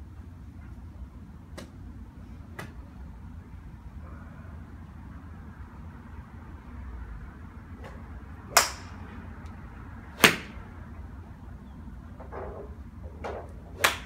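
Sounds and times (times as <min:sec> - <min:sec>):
golf clubs striking balls: 0:07.8 - 0:09.1, 0:10.2 - 0:10.6, 0:12.1 - 0:14.0.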